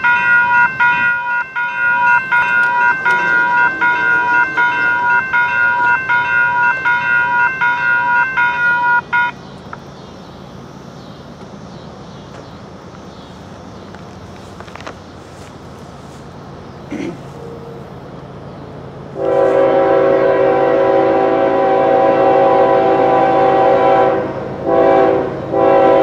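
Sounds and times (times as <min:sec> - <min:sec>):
railroad crossing bell ringing: 0:00.0 - 0:09.6.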